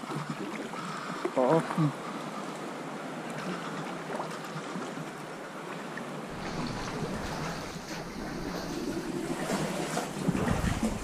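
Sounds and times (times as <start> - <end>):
sea water lapping against rock: 3.2 - 11.0.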